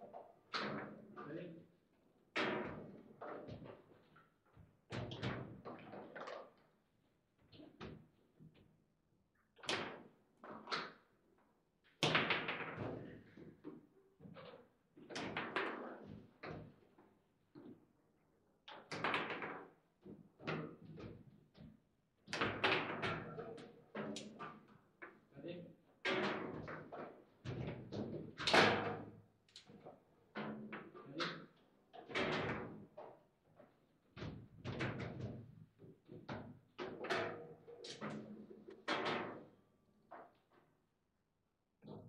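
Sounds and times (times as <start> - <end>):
foosball knocks and clacks: 22.3 - 23.4.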